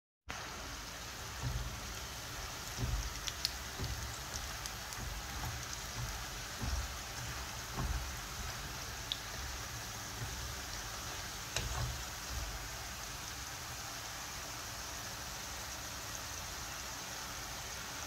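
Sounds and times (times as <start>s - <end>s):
fries sizzling in hot oil: 0.3s - 18.0s
oil popping and crackling: 0.7s - 13.5s
soft low bumps: 1.3s - 12.7s.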